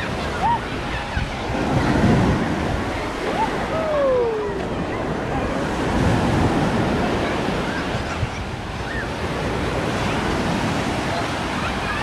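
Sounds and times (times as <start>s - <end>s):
surf waves washing on sand: 0.0s - 12.0s
wind on microphone: 0.0s - 12.0s.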